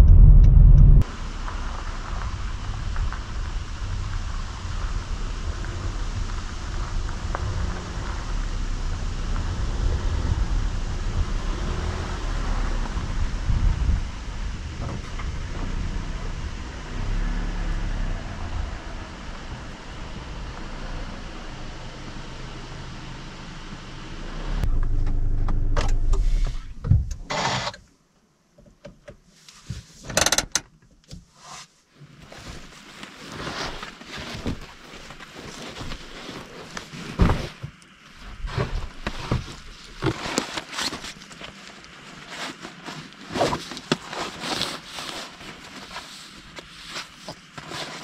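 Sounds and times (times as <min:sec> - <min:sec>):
car engine humming: 0:00.0 - 0:26.8
rustling and thumping of mats: 0:32.0 - 0:41.6.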